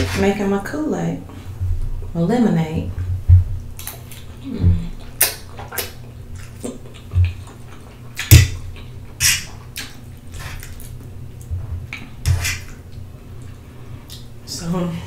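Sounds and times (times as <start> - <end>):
wet mouth smacks: 3.8 - 10.9.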